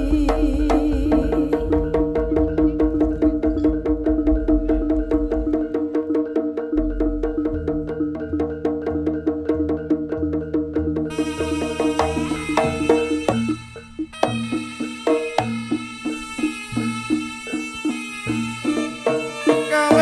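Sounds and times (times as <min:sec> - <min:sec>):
held pitched tones: 0:00.0 - 0:09.0, 0:11.0 - 0:20.0
low drum: 0:00.0 - 0:20.0
struck gamelan percussion: 0:00.0 - 0:20.0.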